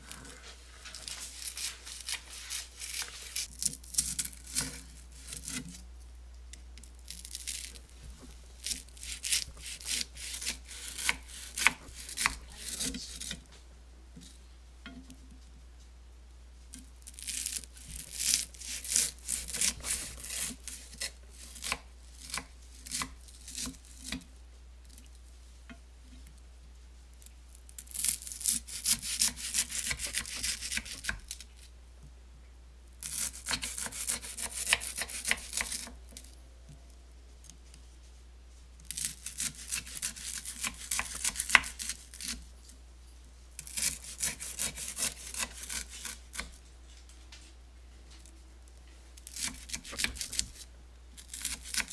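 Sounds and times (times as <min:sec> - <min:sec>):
knife cutting crisp rice treats: 0:08.6 - 0:13.4, 0:17.1 - 0:24.3, 0:27.8 - 0:31.5, 0:33.0 - 0:36.0, 0:38.8 - 0:42.4, 0:43.6 - 0:46.6, 0:49.2 - 0:50.6, 0:51.2 - 0:51.9.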